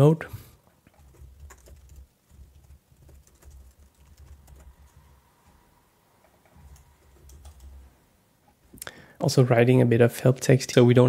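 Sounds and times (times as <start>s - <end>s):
computer keyboard typing: 0.9s - 5.6s, 6.2s - 7.9s.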